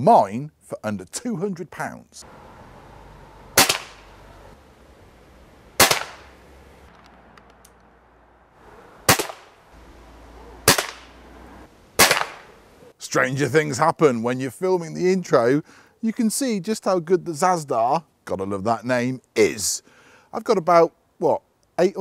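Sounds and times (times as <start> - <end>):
air pistol shots: 3.6 - 4.0, 5.8 - 6.3, 9.1 - 9.6, 10.6 - 11.1, 12.0 - 12.5.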